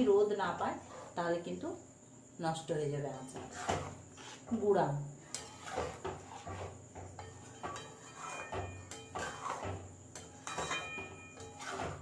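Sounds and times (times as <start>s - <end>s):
spoon scraping metal pan: 3.2s - 4.6s, 5.2s - 12.0s
spoon clinking against pan: 7.2s - 11.8s.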